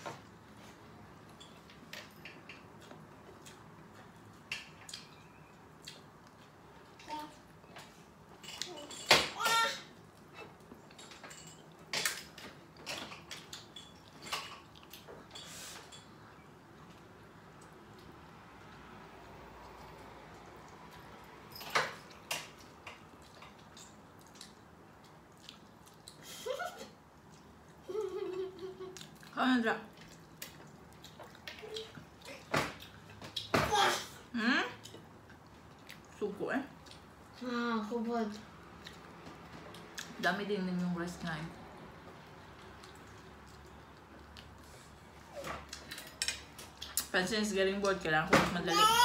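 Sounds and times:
chewing and cutlery clicks: 1.2s - 9.1s, 10.1s - 16.2s, 19.6s - 26.2s, 45.7s - 47.1s.

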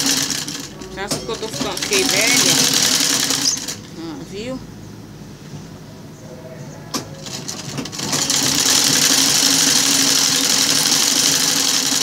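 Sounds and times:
sewing machine running: 0.0s - 3.9s, 7.2s - 12.0s.

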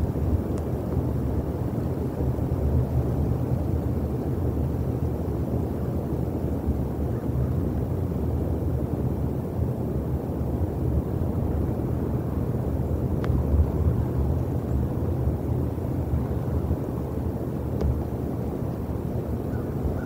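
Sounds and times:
faint sharp clicks: 0.5s - 0.7s, 13.2s - 13.4s, 17.8s - 18.0s.

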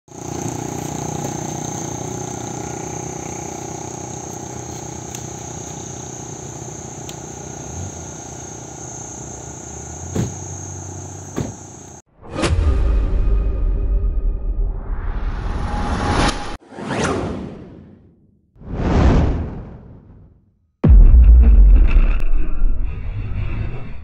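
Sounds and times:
insects droning: 0.1s - 12.1s.

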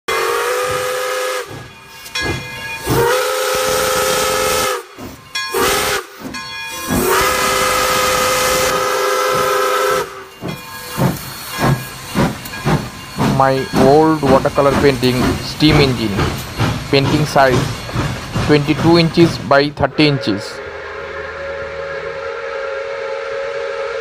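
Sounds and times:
steam locomotive whistle blasts: 0.1s - 1.7s, 2.8s - 10.3s, 19.8s - 24.0s
steam hissing: 0.1s - 24.0s.

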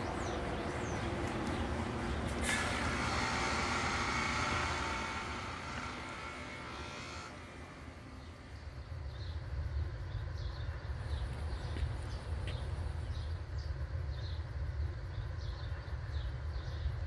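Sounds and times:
small birds chirping: 0.0s - 2.5s, 8.0s - 17.0s
steady low rumble: 0.0s - 17.0s.

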